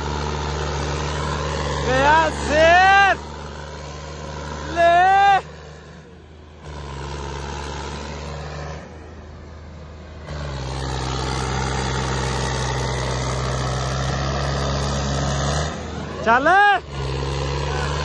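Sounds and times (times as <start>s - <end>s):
tractor diesel engines under load: 0.0s - 18.0s
person shouting: 1.8s - 3.3s, 4.6s - 5.5s, 16.1s - 16.9s.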